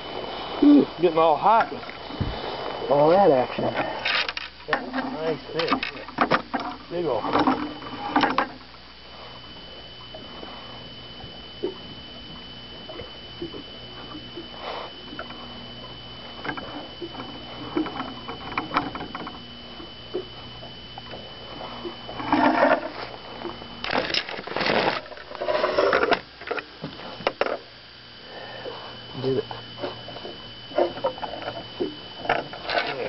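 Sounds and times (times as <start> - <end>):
faint steady hum: 0.0 - 33.0
fish bumping and sloshing: 11.1 - 27.7, 29.8 - 33.0.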